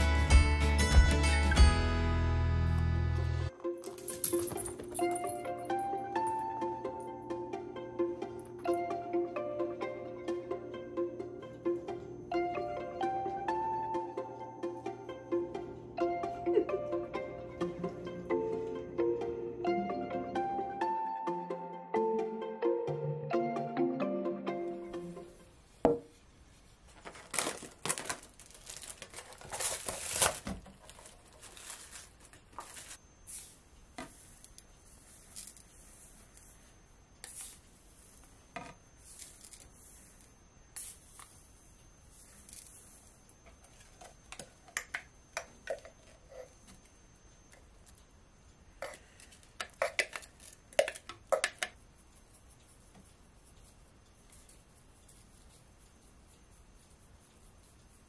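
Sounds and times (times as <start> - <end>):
plastic tray crackling: 26.9 - 33.0.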